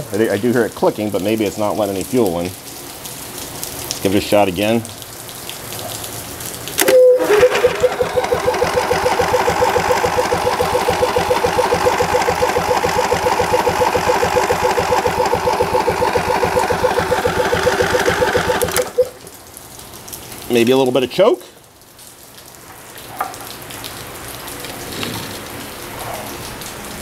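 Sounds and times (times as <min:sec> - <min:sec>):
engine cranking: 0:06.8 - 0:19.2.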